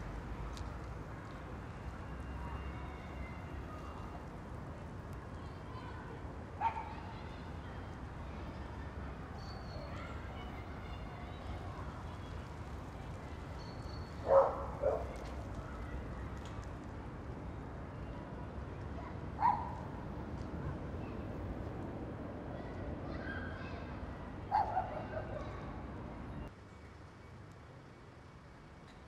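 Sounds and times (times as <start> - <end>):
dog barking: 14.2 - 15.1, 19.4 - 19.8, 24.5 - 25.4.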